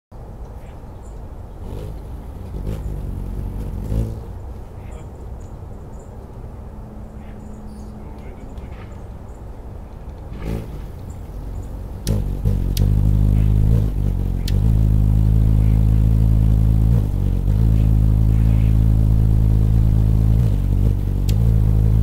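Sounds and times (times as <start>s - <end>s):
hummingbird wings humming: 0.2s - 22.0s
sharp clicks: 12.0s - 13.0s, 14.4s - 14.7s, 21.0s - 21.5s.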